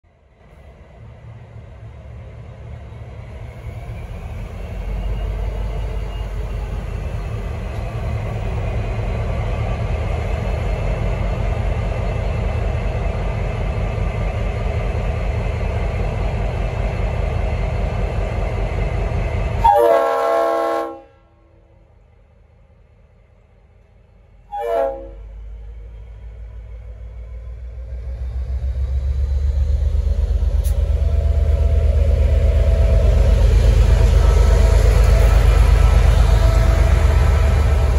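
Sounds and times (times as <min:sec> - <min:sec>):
diesel locomotive engine: 0:00.1 - 0:37.9
locomotive horn: 0:19.6 - 0:21.4, 0:24.5 - 0:25.3.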